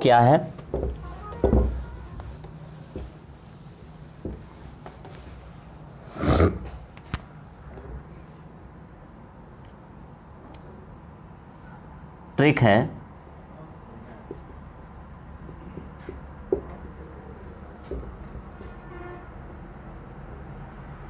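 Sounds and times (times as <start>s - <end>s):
crickets chirping: 0.0s - 21.0s
duster wiping whiteboard: 0.5s - 6.0s.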